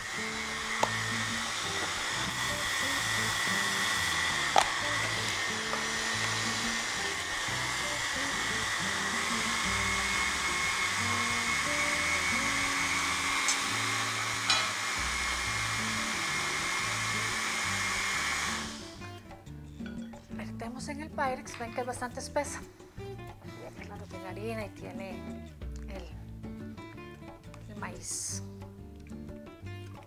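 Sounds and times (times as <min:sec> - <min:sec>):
blender motor whining: 0:00.0 - 0:19.2.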